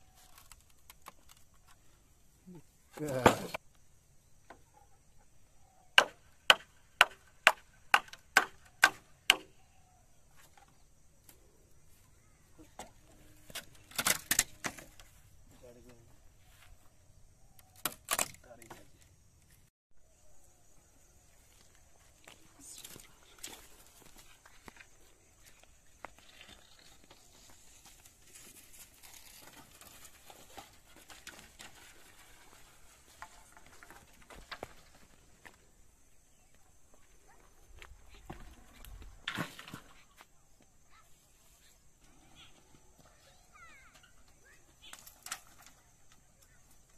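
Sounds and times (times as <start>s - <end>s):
bamboo poles rustling and tapping: 0.0s - 3.8s, 5.7s - 19.7s, 21.5s - 35.8s, 37.9s - 46.9s
blade chopping bamboo: 6.0s - 9.5s.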